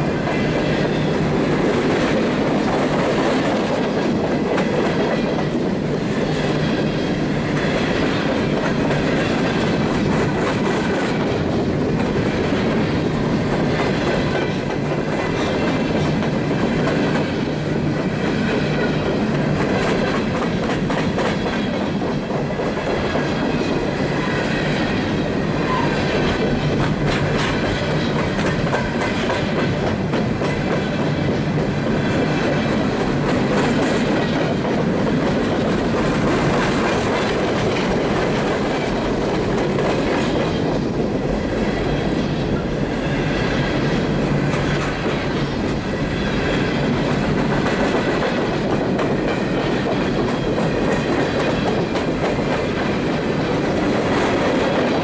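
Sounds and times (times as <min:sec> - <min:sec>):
clickety-clack over rail joints: 0:00.0 - 0:55.0
train wheels rumbling on rail: 0:00.0 - 0:55.0
high-pitched wheel squeal: 0:25.6 - 0:26.2.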